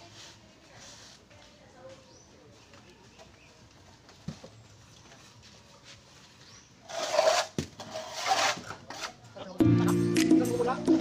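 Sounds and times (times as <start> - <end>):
loud scraping: 6.8 - 9.2
trowel working wet render: 6.8 - 9.2.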